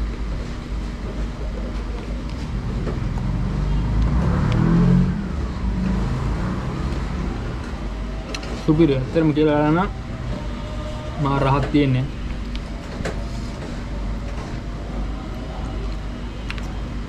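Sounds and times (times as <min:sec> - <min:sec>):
low rumble of traffic: 0:00.0 - 0:17.0
vehicle passing: 0:02.6 - 0:08.0.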